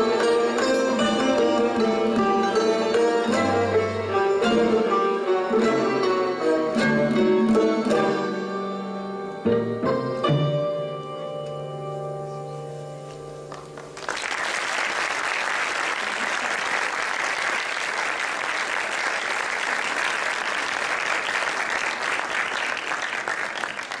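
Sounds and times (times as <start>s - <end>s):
audience applause: 13.5s - 24.0s.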